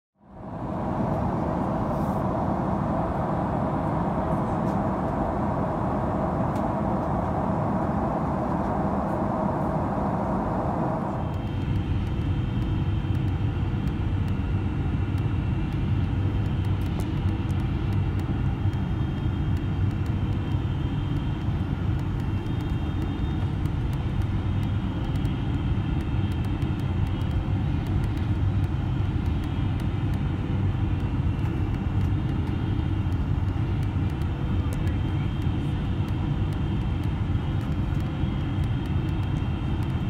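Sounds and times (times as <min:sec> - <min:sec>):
faint wavering engine tone: 0:00.2 - 0:16.6
airplane cabin rumble: 0:00.2 - 0:40.0.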